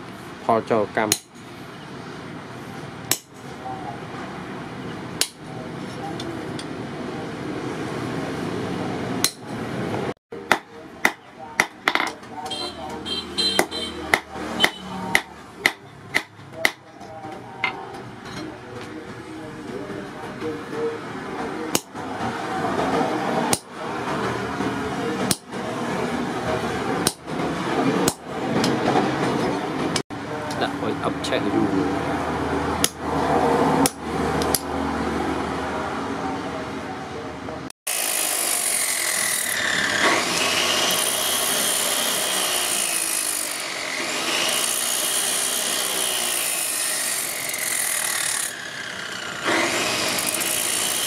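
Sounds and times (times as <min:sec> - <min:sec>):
steady background noise: 0:00.0 - 0:37.7
hammer striking anvil: 0:13.4 - 0:16.8.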